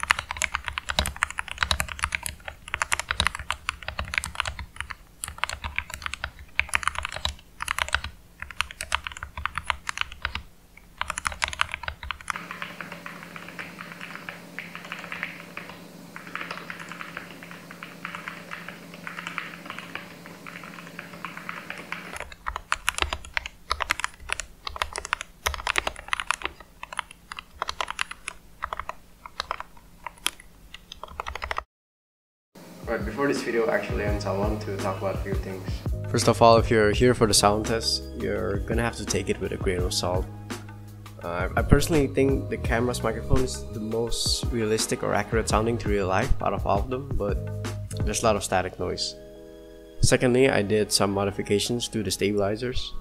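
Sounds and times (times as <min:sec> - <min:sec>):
microphone static hiss: 0:00.0 - 0:31.0, 0:32.6 - 0:42.6
fast keyboard typing: 0:00.0 - 0:31.6.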